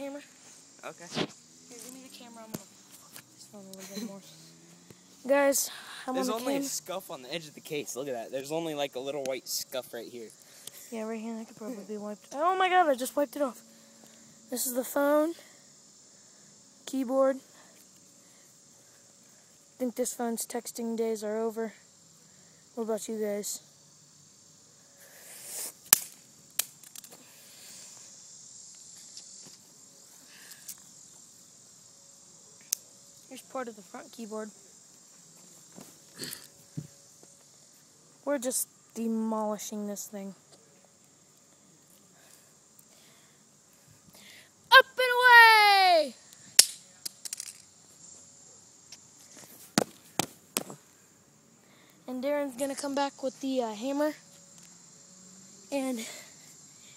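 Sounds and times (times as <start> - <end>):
crickets chirring: 0.0 - 56.9
insects trilling: 0.0 - 56.9
plastic piece clicking on concrete: 25.9 - 27.2, 46.6 - 47.7.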